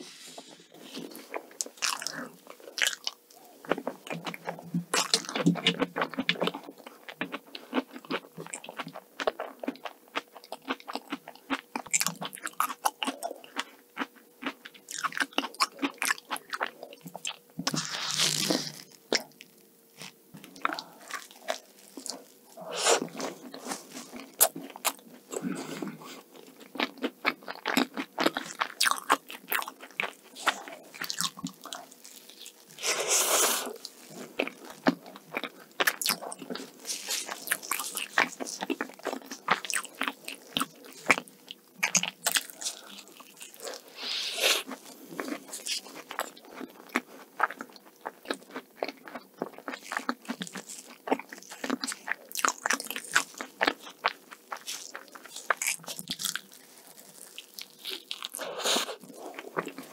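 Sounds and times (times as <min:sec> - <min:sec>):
crisp pastry bites crackling: 0:26.5 - 0:32.8, 0:33.8 - 0:43.6, 0:44.7 - 0:58.4
moist chewing: 0:44.5 - 0:59.9.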